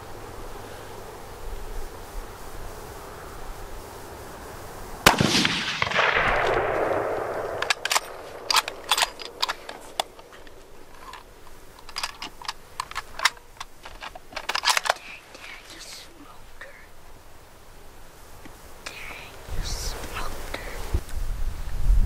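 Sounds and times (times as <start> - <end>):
rifle shot echoing: 5.0 - 11.2.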